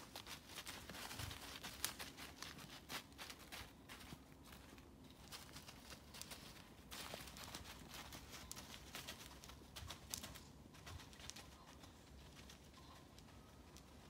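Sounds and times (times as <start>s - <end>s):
deer running through dry leaves: 0.0s - 14.0s
bird calling faintly: 10.8s - 14.0s.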